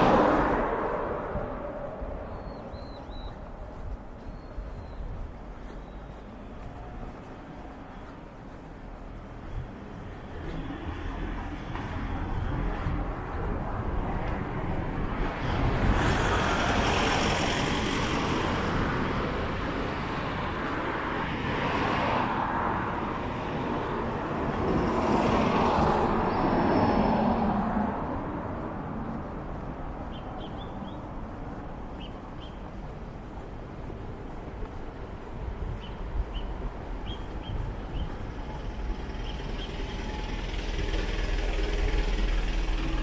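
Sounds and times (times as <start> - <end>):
steady traffic hum: 0.0 - 43.0
vehicles passing: 0.0 - 43.0.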